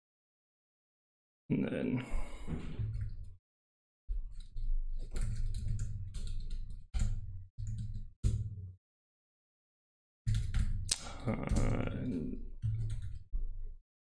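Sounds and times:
typing on computer keyboard: 4.3 - 8.4, 10.3 - 13.2.

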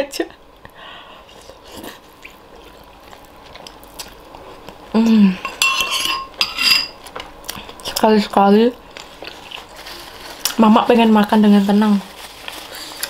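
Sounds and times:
spoons clinking on ceramic bowl: 5.5 - 7.0.

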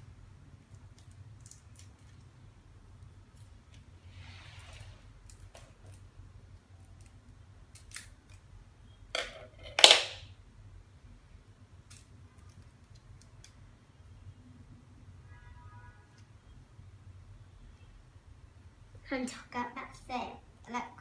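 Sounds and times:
scissors snipping plastic: 6.8 - 8.4.

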